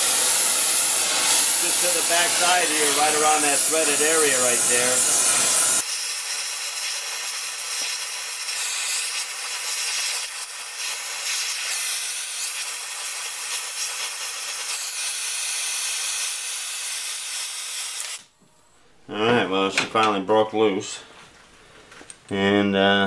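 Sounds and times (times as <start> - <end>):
torch flame hissing: 0.0 - 18.3.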